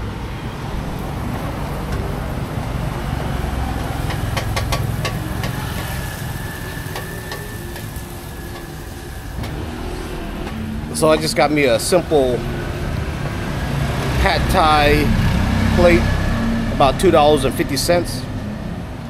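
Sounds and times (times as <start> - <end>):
vehicle engines rumbling: 0.0 - 19.0.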